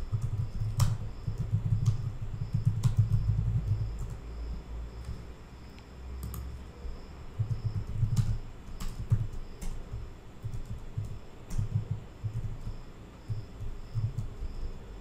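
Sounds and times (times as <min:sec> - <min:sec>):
low background hum: 0:00.0 - 0:15.0
keyboard keystrokes: 0:00.1 - 0:04.2, 0:06.2 - 0:06.5, 0:07.4 - 0:12.7.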